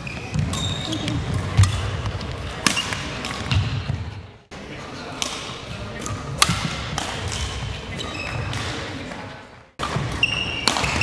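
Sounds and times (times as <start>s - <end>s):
trainers squeaking on floor: 0.0s - 1.4s, 7.9s - 8.5s, 10.1s - 11.0s
racket hitting shuttlecock: 0.0s - 4.1s, 5.1s - 9.0s, 9.8s - 11.0s.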